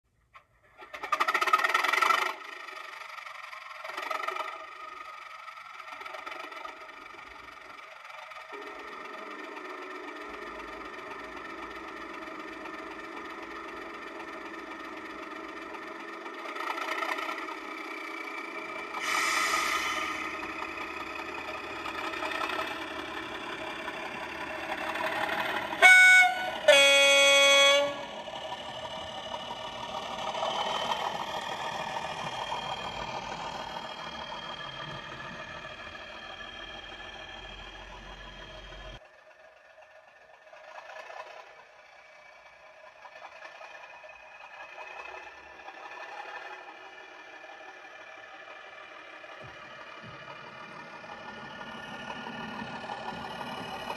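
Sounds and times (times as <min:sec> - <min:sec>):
model diesel engine sound: 0:00.1 - 0:53.9
two-tone horn: 0:25.6 - 0:28.3.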